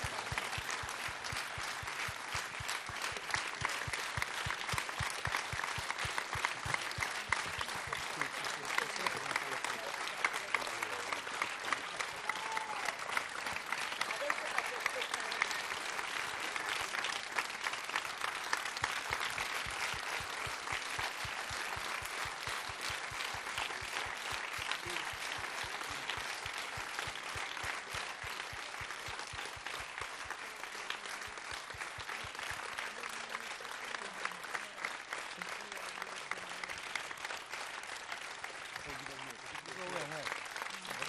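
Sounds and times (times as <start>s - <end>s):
audience applauding: 0.0s - 41.0s.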